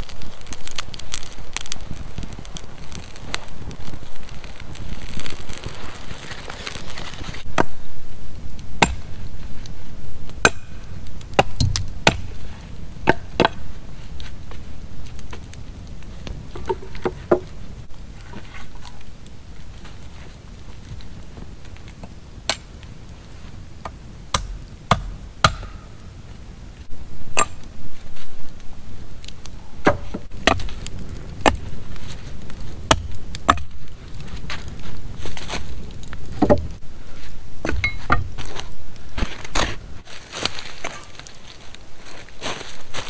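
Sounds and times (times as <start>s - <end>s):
wooden knocks and chopping: 24.3s - 25.8s, 29.8s - 30.7s, 36.4s - 36.7s.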